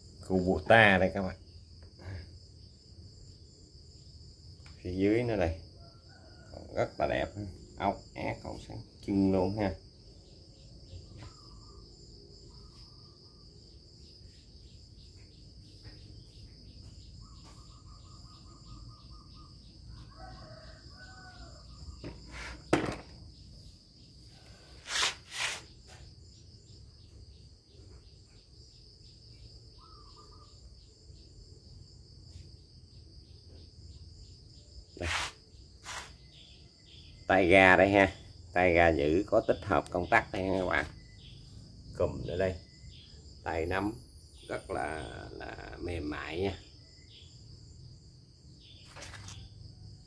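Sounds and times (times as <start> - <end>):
insects chirring: 0.0 - 50.0
bird calls: 15.7 - 23.0, 29.8 - 30.6
sharp knock: 22.0 - 23.1
short bursts of noise: 24.8 - 25.7, 35.0 - 36.2.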